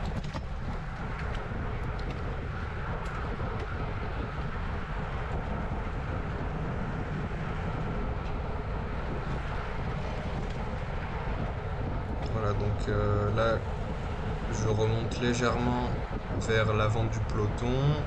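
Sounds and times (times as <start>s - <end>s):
tyre and road noise: 0.0s - 18.0s
wind buffeting microphone: 0.0s - 18.0s.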